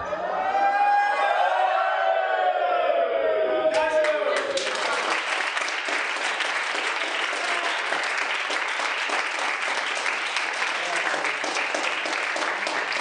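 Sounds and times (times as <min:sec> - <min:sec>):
people clapping: 0:03.7 - 0:13.0.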